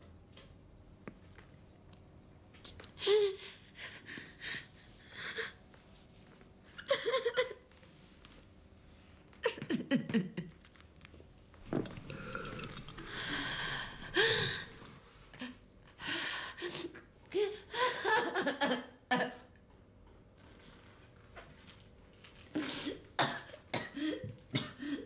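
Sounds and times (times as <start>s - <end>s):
woman gasping and sighing: 11.9s - 14.9s
woman exhaling breathily: 12.1s - 14.8s.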